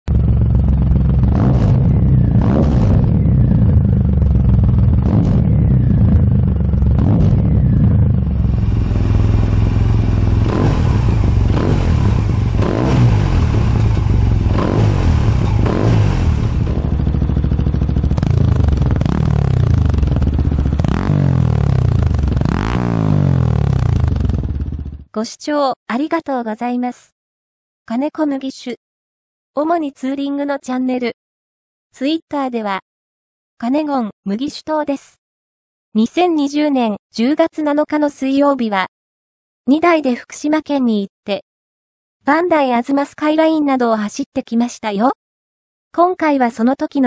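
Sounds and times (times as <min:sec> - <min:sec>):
motorcycle engines idling and revving: 0:00.1 - 0:25.1.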